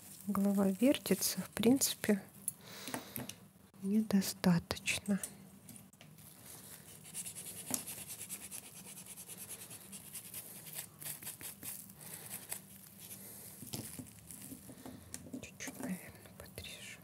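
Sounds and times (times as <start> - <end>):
hands rustling and scratching: 0.0 - 1.9, 6.2 - 14.8.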